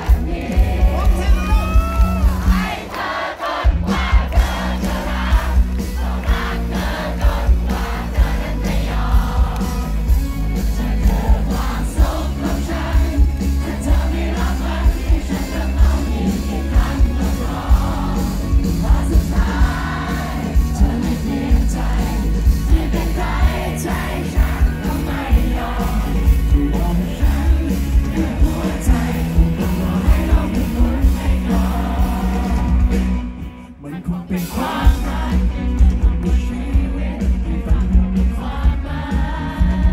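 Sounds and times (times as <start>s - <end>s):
crowd voices: 0.0s - 39.9s
live pop-rock band: 0.0s - 39.9s
man singing: 10.7s - 33.0s, 33.6s - 39.9s.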